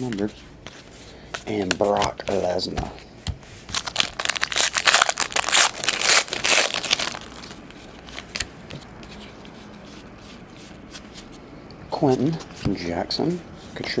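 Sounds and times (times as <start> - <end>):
foil wrapper tearing and crinkling: 3.7 - 7.6.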